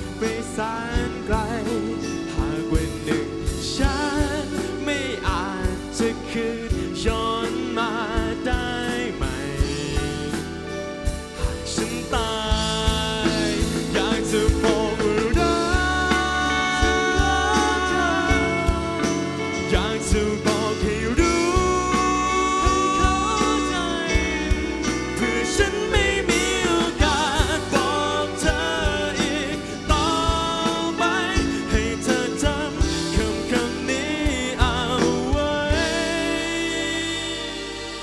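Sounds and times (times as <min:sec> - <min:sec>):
band with drums and bass: 0:00.0 - 0:38.0
man singing into microphone: 0:00.0 - 0:38.0.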